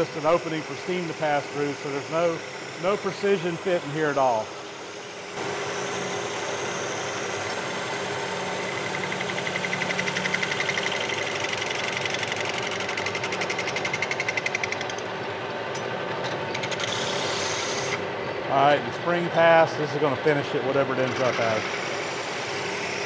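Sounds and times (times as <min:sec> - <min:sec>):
metal lathe cutting: 0:00.0 - 0:15.0, 0:20.3 - 0:23.0.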